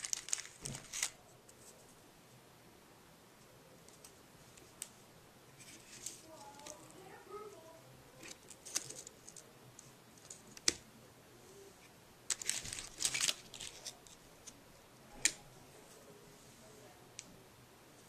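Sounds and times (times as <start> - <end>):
plastic packets crinkling: 0.0 - 1.2, 12.3 - 14.2.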